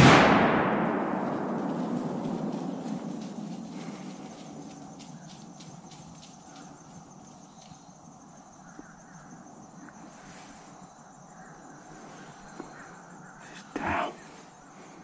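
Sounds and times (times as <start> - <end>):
gunshot echo rumbling: 0.0 - 3.3
insects buzzing: 1.7 - 15.0
faint insect ticks: 1.8 - 14.9.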